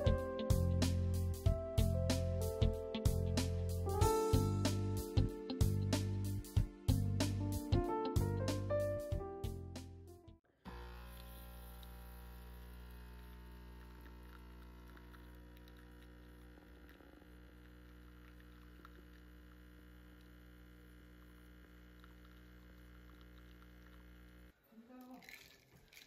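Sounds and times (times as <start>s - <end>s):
electrical hum with low buzz: 10.7s - 24.5s.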